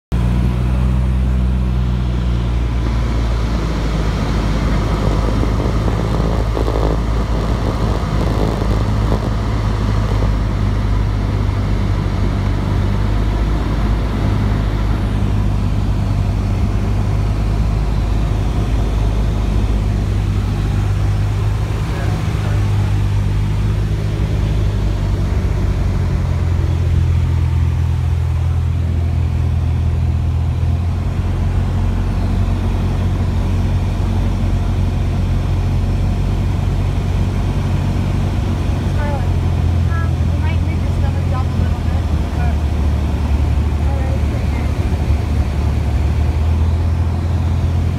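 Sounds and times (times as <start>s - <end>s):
propeller plane engine droning: 0.1s - 47.9s.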